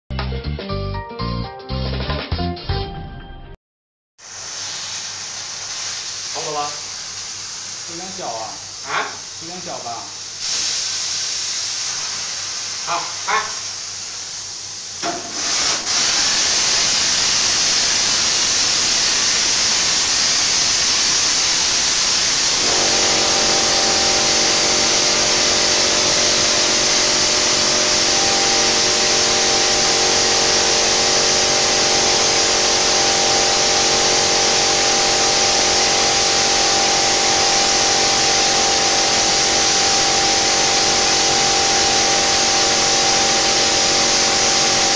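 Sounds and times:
spray gun hissing: 4.2s - 44.9s
machine hum: 22.5s - 44.9s.

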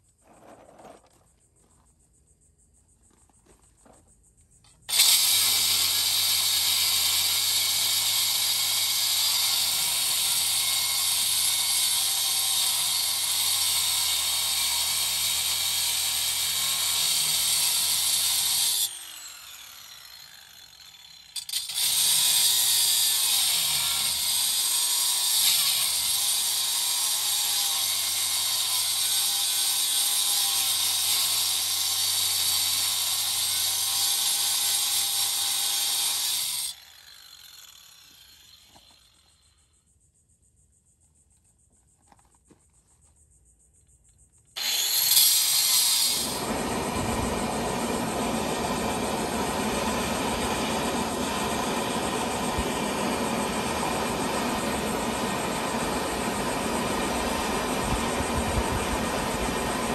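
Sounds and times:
power tool running: 4.9s - 39.6s, 44.6s - 59.9s.

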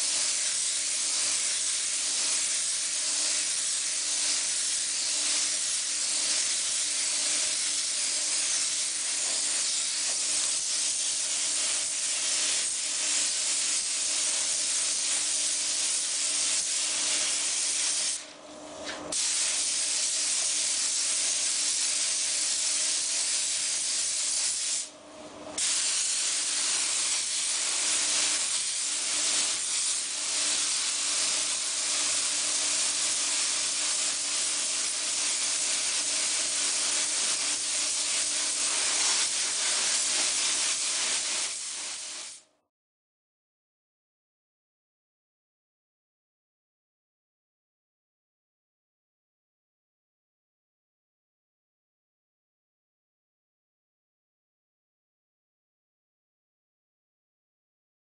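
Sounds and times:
paint spray gun hissing: 0.0s - 18.2s, 19.1s - 24.9s, 25.6s - 42.4s.

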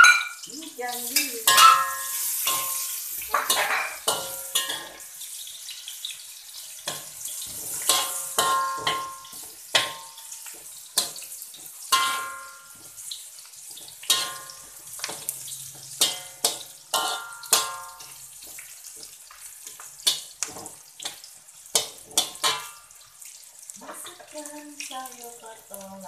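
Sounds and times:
wok ringing: 0.0s - 5.2s, 6.8s - 11.2s, 11.8s - 13.0s, 13.8s - 18.2s, 21.8s - 23.1s
food sizzling in oil: 0.0s - 26.0s
metal spatula clanking on wok: 1.1s - 5.0s, 6.8s - 10.2s, 11.9s - 12.9s, 13.9s - 15.3s, 15.9s - 18.1s, 20.0s - 22.8s.

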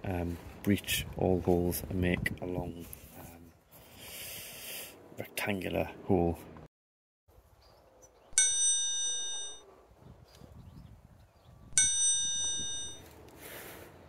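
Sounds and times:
metallic bell dings: 8.4s - 9.6s, 11.8s - 13.1s.

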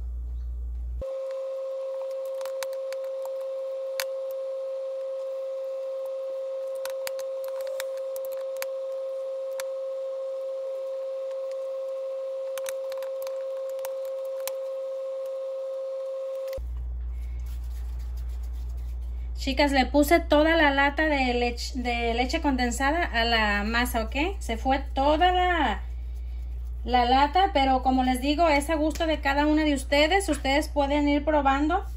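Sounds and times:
steady electronic tone: 1.0s - 16.6s.

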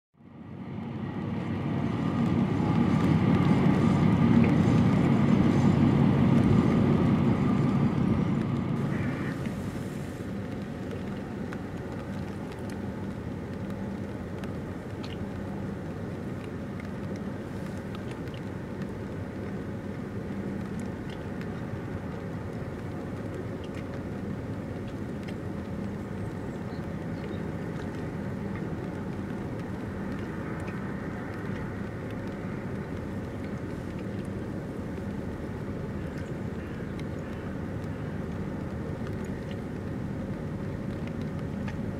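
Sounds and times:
ship engine drone: 0.2s - 41.9s.

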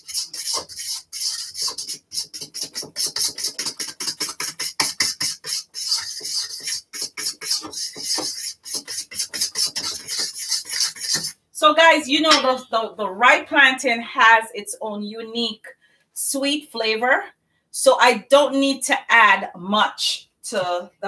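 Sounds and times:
fork whisking batter in a bowl: 0.0s - 11.4s.

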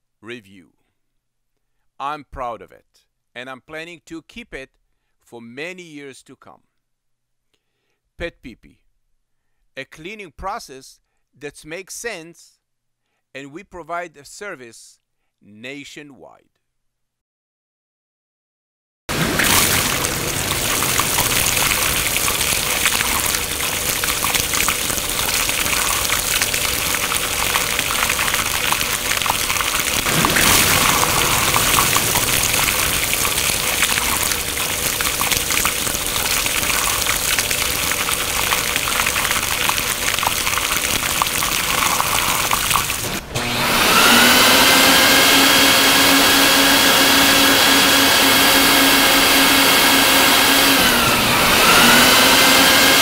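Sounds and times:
motor whining: 19.1s - 37.0s, 41.8s - 53.0s
water spraying from nozzles: 19.1s - 53.0s.

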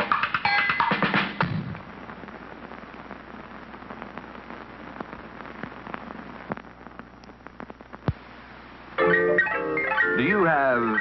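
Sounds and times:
film soundtrack hiss: 0.0s - 11.0s
clicks and pops: 6.4s - 8.2s.

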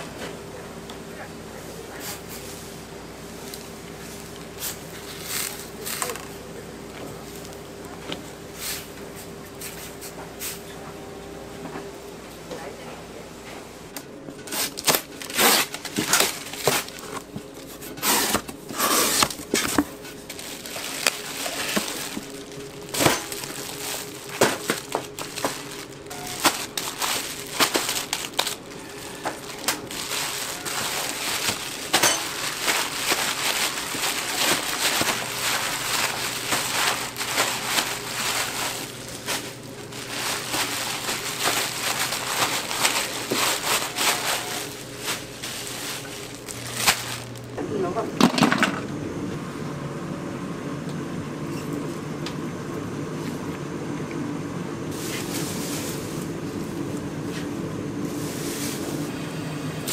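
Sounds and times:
plastic bags crinkling: 3.4s - 6.4s, 14.4s - 47.6s, 54.9s - 56.3s.

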